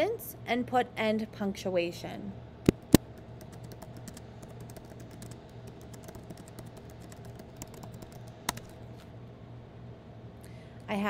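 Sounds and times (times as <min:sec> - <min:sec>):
typing on computer keyboard: 0:02.7 - 0:08.8.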